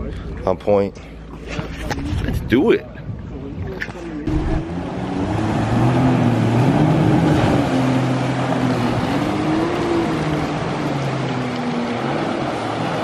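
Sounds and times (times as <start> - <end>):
jet ski engines: 0.0 - 13.0
rushing water wash: 4.3 - 13.0.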